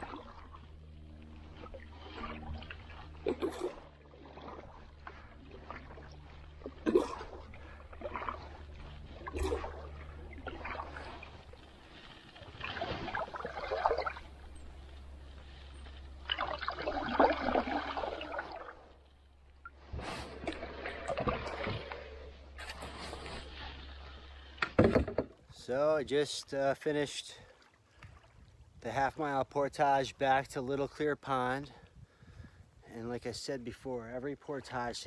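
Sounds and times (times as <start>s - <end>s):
low rumble: 0.0s - 24.6s
paddle strokes in water: 0.0s - 25.6s, 26.3s - 32.7s.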